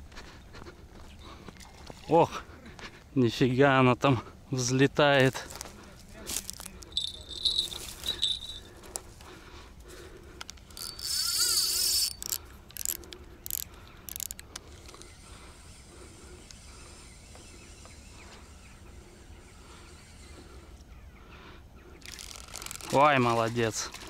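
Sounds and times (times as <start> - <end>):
dry grass crunching underfoot: 5.4 - 9.2
fishing reel clicks: 6.5 - 8.6, 10.4 - 15.2, 22.0 - 23.1
fishing line running off reel: 6.5 - 8.7, 10.5 - 15.8, 22.0 - 23.1.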